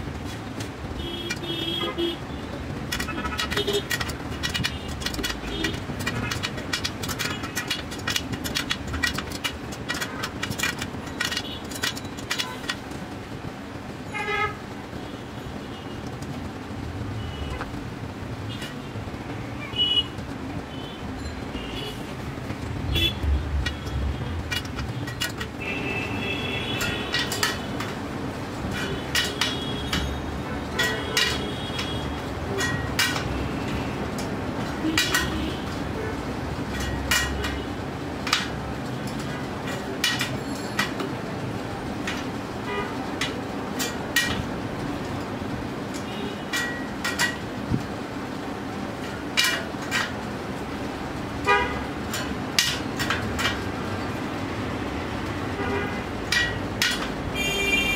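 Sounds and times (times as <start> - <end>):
steady traffic hum: 0.0 - 57.9
vehicle horn toots: 51.5 - 51.9, 57.4 - 57.9.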